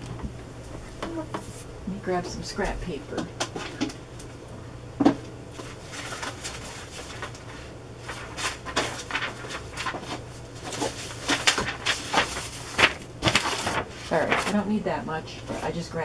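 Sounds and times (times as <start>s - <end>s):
steady low hum: 0.0s - 16.0s
paper rustling: 5.5s - 14.8s, 15.4s - 15.9s.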